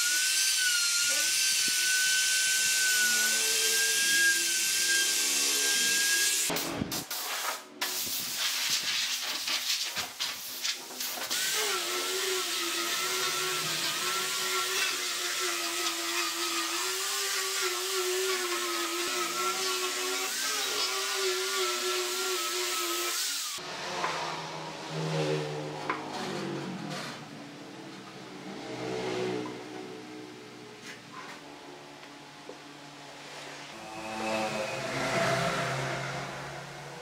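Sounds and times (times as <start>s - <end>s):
angle grinder sanding wood: 11.4s - 23.6s.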